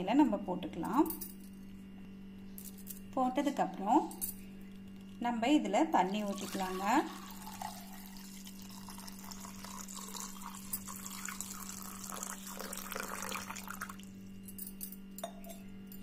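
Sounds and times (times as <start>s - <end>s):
steady low hum: 0.0s - 16.0s
water pouring into a pot: 6.1s - 14.2s.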